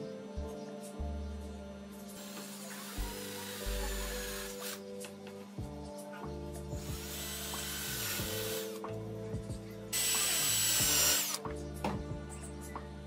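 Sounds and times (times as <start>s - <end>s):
background music: 0.0s - 13.0s
cordless drill boring into wood: 2.2s - 4.8s, 6.8s - 8.8s, 10.0s - 11.4s.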